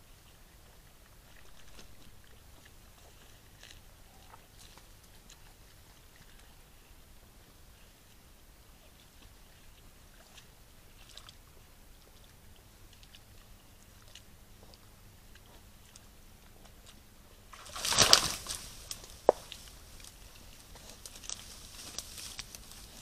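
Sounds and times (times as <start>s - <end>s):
faint ticks and rustles: 0.0s - 23.0s
animal splashing in water: 17.5s - 23.0s.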